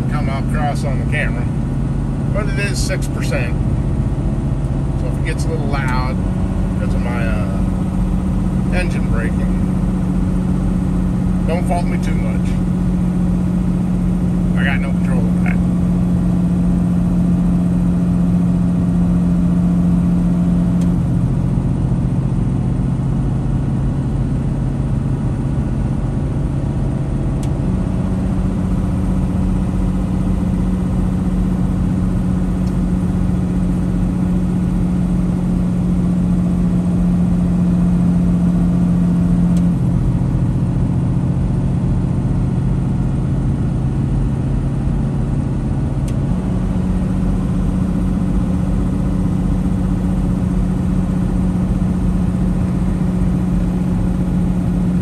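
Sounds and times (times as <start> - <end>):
road noise: 0.0 - 22.8.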